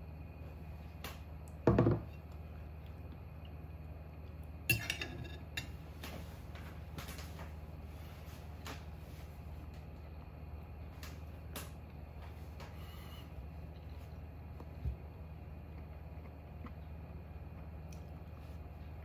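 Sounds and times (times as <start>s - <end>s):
low steady hum: 0.0s - 19.0s
metal fork clinking on ceramic plate: 4.7s - 5.4s.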